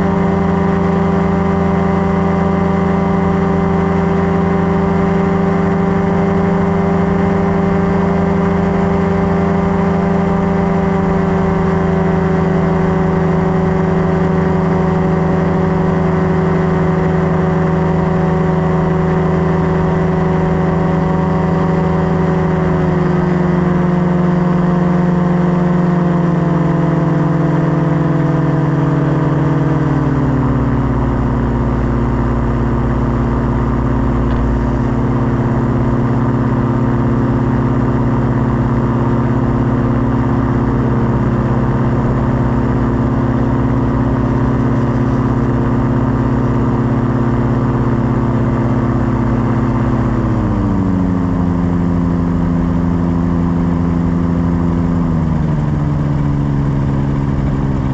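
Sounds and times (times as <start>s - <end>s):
paramotor engine and propeller: 0.0s - 57.9s.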